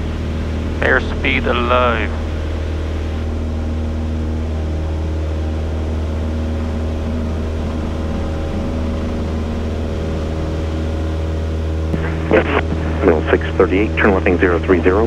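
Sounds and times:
airplane engine at full power: 0.0 - 15.0.

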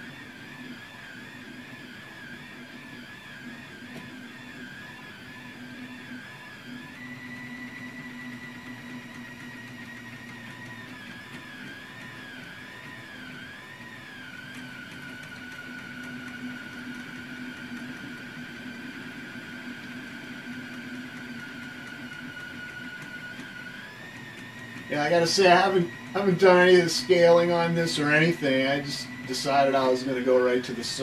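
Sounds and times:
cooling fan hum: 0.0 - 31.0
stepper motors whining: 0.0 - 31.0.

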